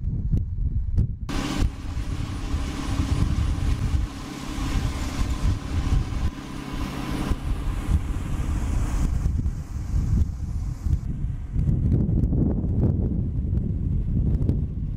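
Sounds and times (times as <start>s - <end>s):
bulldozer diesel engine running: 1.3s - 11.9s.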